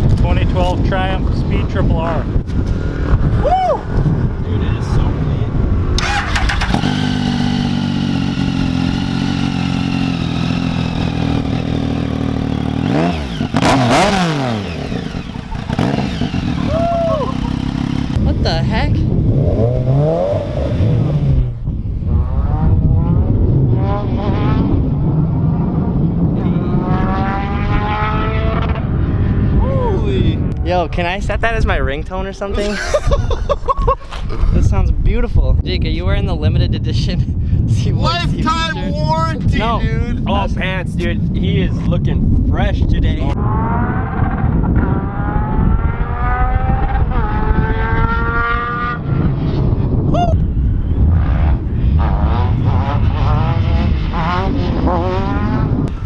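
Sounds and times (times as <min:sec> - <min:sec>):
wind noise on microphone: 0:00.0 - 0:56.0
motorcycle engine revving: 0:05.6 - 0:29.6, 0:43.0 - 0:50.1, 0:50.9 - 0:56.0.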